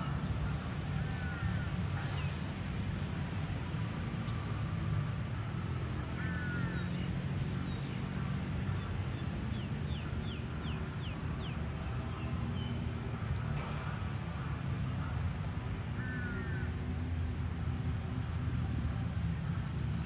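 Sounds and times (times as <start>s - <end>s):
birds calling: 12.2s - 17.9s.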